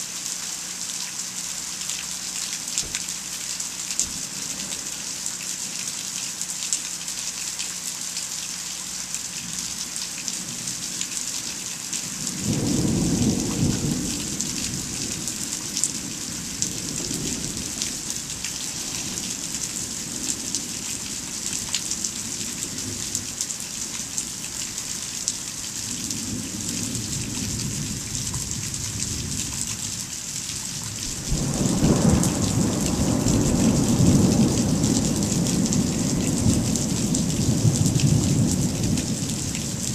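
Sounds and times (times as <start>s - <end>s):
rain hissing: 0.0s - 39.9s
thunder rumbling: 12.2s - 21.2s, 31.0s - 39.9s.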